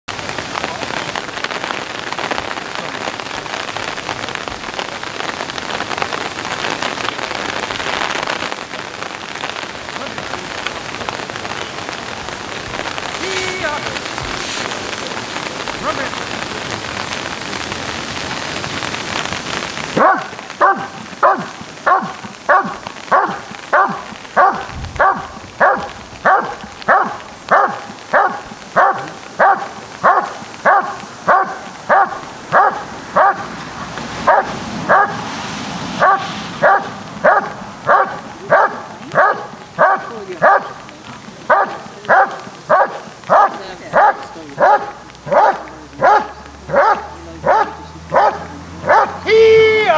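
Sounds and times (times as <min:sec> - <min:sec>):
steady hiss: 0:00.2 - 0:49.9
dog barking loudly: 0:19.9 - 0:33.6, 0:34.2 - 0:35.3, 0:36.0 - 0:40.8, 0:41.4 - 0:49.4.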